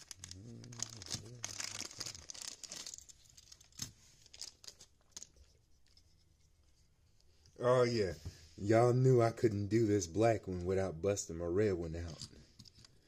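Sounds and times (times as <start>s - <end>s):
plastic bag crinkling: 0.0s - 5.7s.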